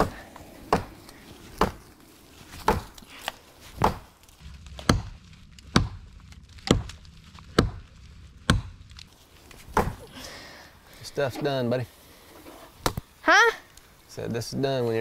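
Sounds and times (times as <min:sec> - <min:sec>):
wood chopping knocks: 0:01.6 - 0:01.8, 0:02.6 - 0:03.0, 0:03.8 - 0:04.1, 0:04.8 - 0:05.1, 0:05.7 - 0:06.0, 0:06.6 - 0:07.8, 0:09.7 - 0:10.0.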